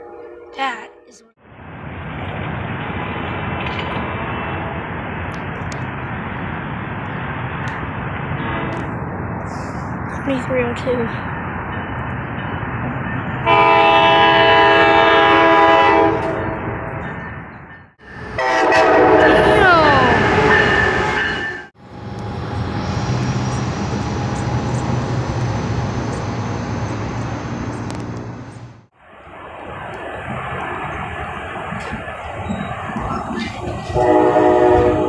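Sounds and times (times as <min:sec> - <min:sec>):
train rumbling past: 0:00.0 - 0:35.0
train air horn blasts: 0:13.4 - 0:16.8, 0:18.3 - 0:21.7, 0:33.9 - 0:35.0.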